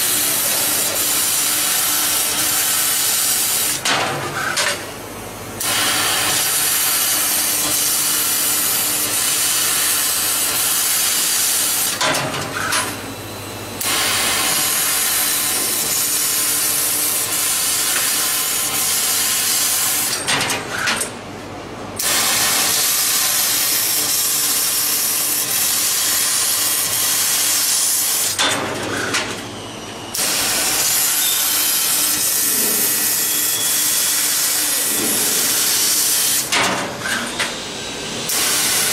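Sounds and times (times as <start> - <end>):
laser cutter hissing: 0.0 - 3.8, 5.6 - 12.0, 13.8 - 20.1, 22.0 - 28.4, 29.6 - 38.9.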